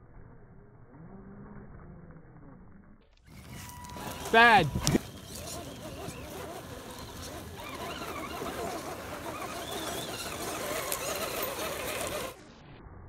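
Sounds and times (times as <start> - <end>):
wheels over dirt and gravel: 0.8 - 12.6
toy car motor whining: 3.3 - 12.6.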